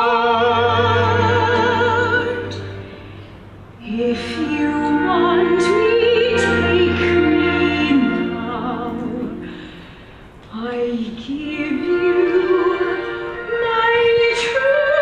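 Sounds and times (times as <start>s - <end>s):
duet singing with vibrato: 0.0s - 10.0s.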